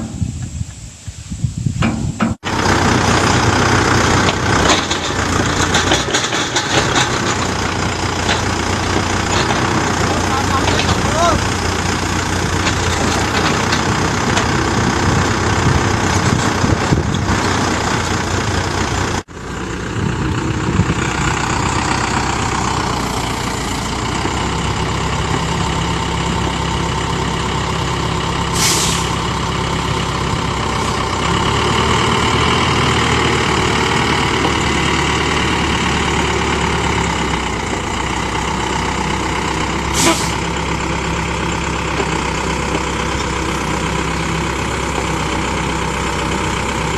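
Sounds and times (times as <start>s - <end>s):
excavator diesel engine running: 1.8s - 46.9s
short hisses: 28.5s - 29.2s, 39.9s - 40.4s.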